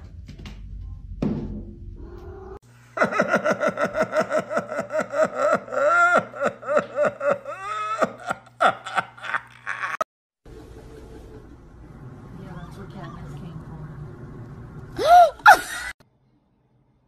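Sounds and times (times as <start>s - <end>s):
person laughing hard: 3.0s - 10.1s, 15.0s - 16.0s.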